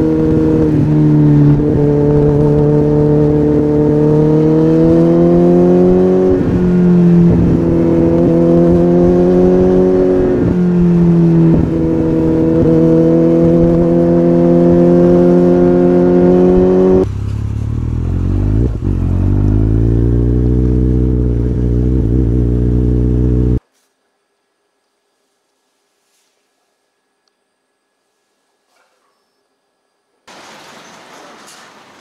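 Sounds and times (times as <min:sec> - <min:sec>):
motorcycle engine revving: 0:00.0 - 0:23.6.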